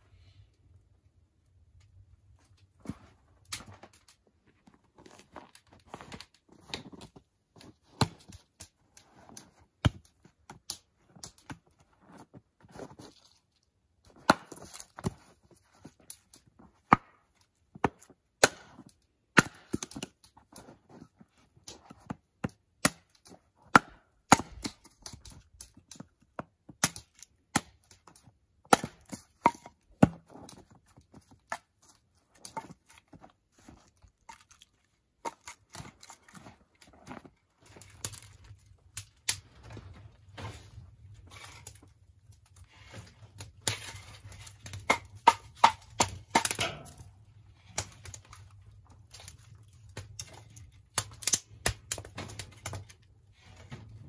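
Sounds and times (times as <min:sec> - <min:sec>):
axe chopping wood: 0:14.1 - 0:15.1, 0:17.8 - 0:20.1, 0:22.4 - 0:25.2, 0:26.7 - 0:30.6, 0:43.6 - 0:47.1.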